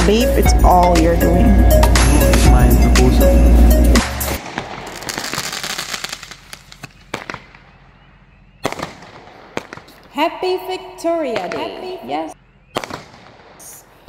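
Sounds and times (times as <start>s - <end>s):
music with heavy bass beat: 0.0s - 4.4s
fireworks crackling and popping: 4.4s - 7.8s, 8.6s - 10.2s, 12.8s - 14.0s.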